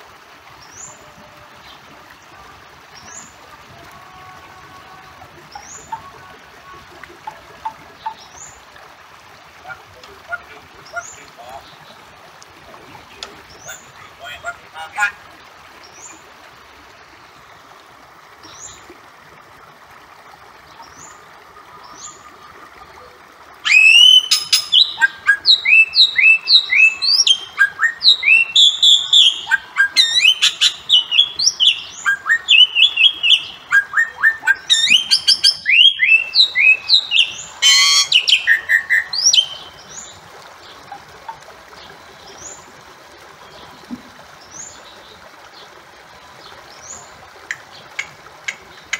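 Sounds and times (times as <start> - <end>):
mynas whistled calls: 23.7 - 39.6.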